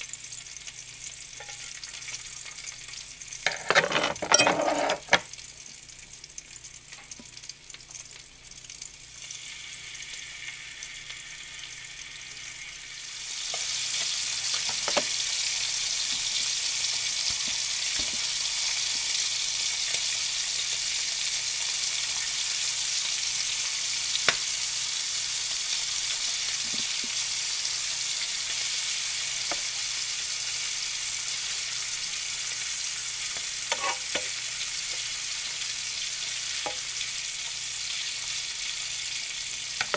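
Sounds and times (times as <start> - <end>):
bacon sizzling in frying pan: 0.0 - 39.9
fork clicking against pan: 33.3 - 34.3.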